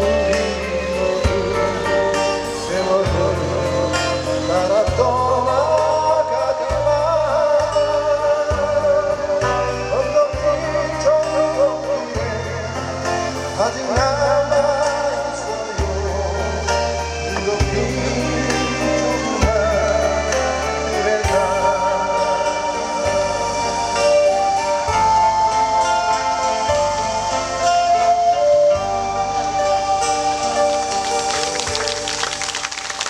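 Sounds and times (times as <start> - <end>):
person singing: 0.0 - 25.0
bass notes: 0.0 - 33.0.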